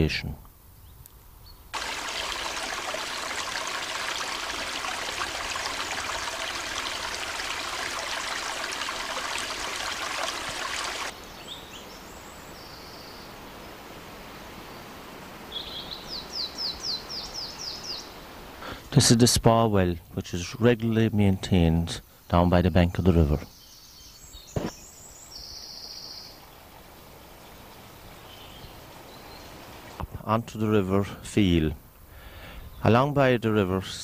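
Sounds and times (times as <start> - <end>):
stream trickling: 1.7 - 14.4, 26.2 - 30.1.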